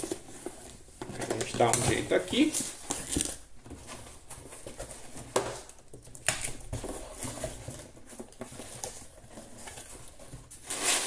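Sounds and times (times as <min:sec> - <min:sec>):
packing paper rustling: 0:00.0 - 0:11.0
cardboard box being handled: 0:06.6 - 0:11.0.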